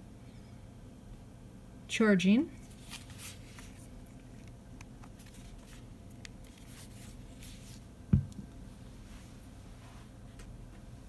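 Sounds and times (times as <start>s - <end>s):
speaker thump on desk: 8.1s - 8.4s.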